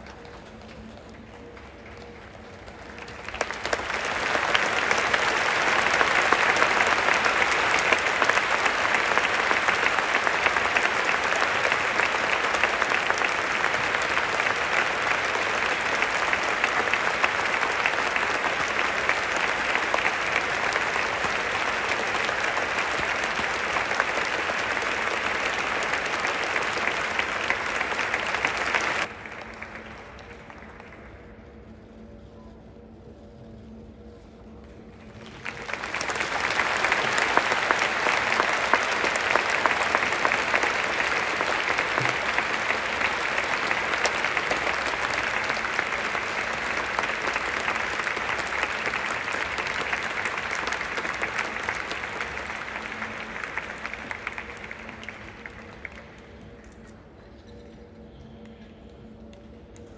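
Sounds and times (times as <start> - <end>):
stadium crowd clapping: 0.0 - 32.4, 34.6 - 57.8, 58.4 - 59.9.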